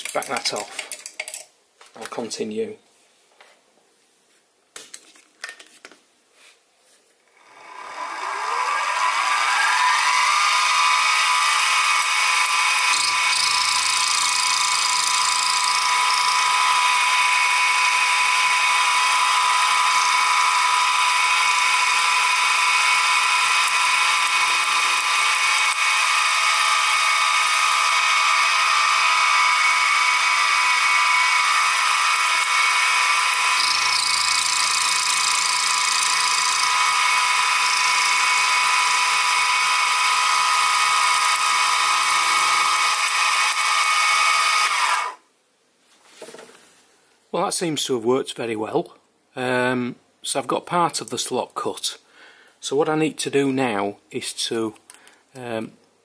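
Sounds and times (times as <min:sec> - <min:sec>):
mill spindle motor whine: 0:07.0 - 0:45.2
end mill cutting brass: 0:07.1 - 0:45.1.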